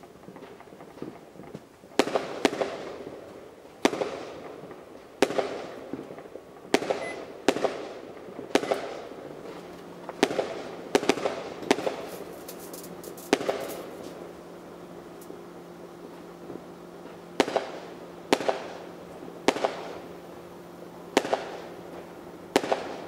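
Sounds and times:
firecracker bangs echoing: 2.0 - 3.1, 3.8 - 4.6, 5.2 - 14.1, 17.3 - 20.1, 21.1 - 23.0
short beep: 7.0 - 7.2.

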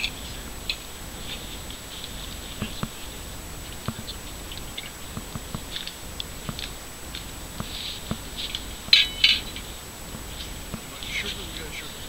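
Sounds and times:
metallic clink: 8.9 - 9.7.

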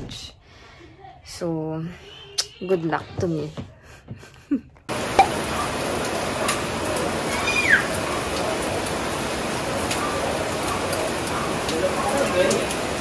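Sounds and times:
heavy rain falling: 4.9 - 13.0.

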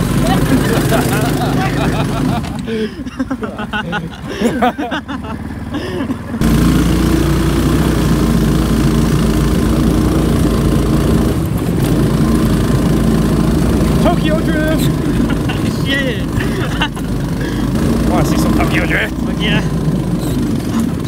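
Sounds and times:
voices: 0.0 - 6.5, 13.8 - 21.0
engine running loudly: 0.0 - 21.0.

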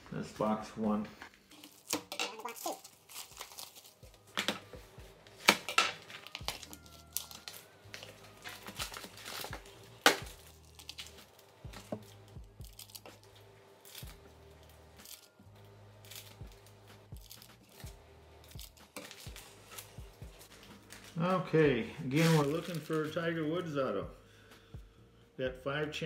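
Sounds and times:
card pack wrappers tearing: 1.4 - 15.4, 16.0 - 21.2, 22.0 - 23.2.

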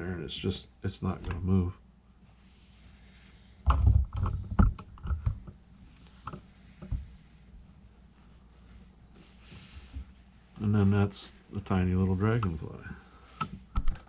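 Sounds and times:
low knocks and rustles: 3.3 - 10.8.

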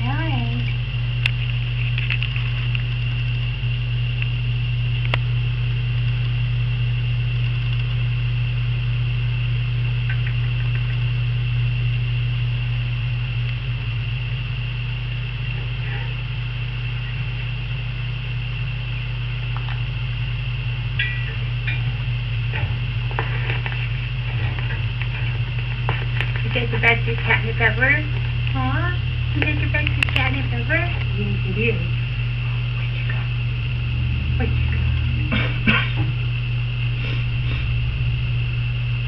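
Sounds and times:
low hum with high whine: 0.0 - 39.0.

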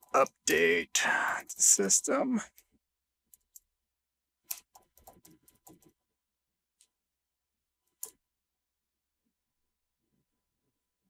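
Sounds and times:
computer keyboard keystrokes: 4.4 - 6.0.

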